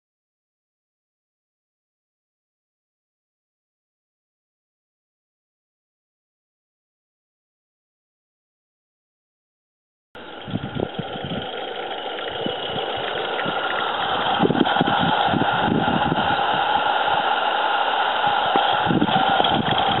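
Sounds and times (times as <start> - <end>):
steam locomotive exhaust beats: 10.2 - 20.0
steam hiss: 10.3 - 20.0.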